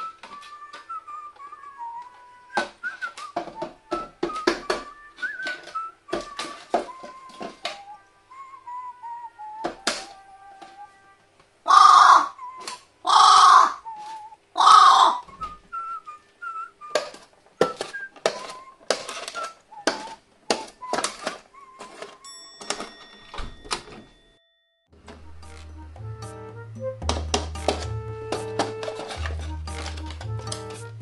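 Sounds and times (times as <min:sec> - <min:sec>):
crow cawing: 0:11.7 - 0:12.4, 0:13.0 - 0:13.8, 0:14.6 - 0:15.3.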